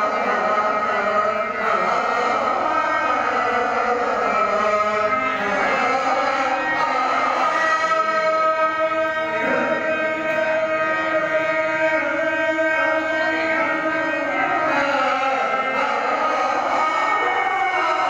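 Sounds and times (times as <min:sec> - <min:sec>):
drone-like accompaniment: 0:00.0 - 0:18.0
person singing ornamented verse: 0:00.0 - 0:18.0.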